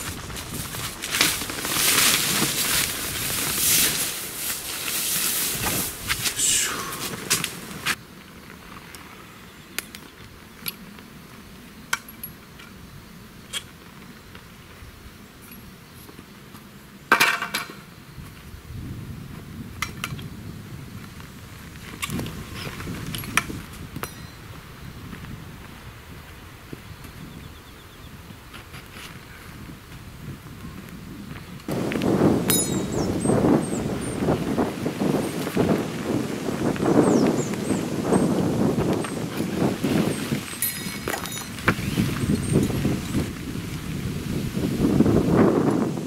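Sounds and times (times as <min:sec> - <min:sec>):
tent fabric rustling: 0:00.0 - 0:08.8
tent pole and fabric rustling: 0:00.0 - 0:11.5, 0:31.4 - 0:46.0.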